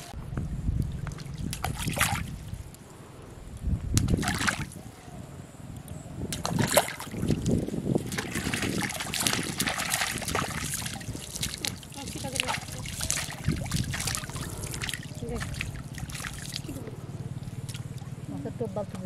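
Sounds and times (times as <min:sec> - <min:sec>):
pond water splashing: 0:00.8 - 0:02.5, 0:04.0 - 0:04.8, 0:06.3 - 0:18.2.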